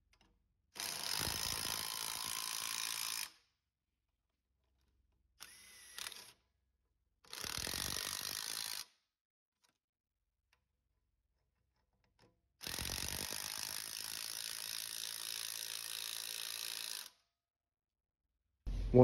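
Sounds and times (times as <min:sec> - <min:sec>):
cordless power wrench running: 0:00.8 - 0:03.3, 0:07.3 - 0:08.8, 0:12.6 - 0:17.1
low hum: 0:18.7 - 0:19.0.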